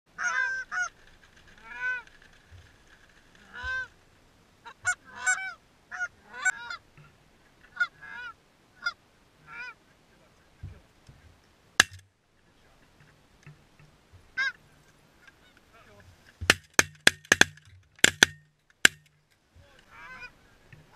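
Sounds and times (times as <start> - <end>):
goose call honks and clucks: 0.2 - 0.9, 4.6 - 6.8, 7.7 - 9.8, 14.4 - 14.6, 19.8 - 20.4.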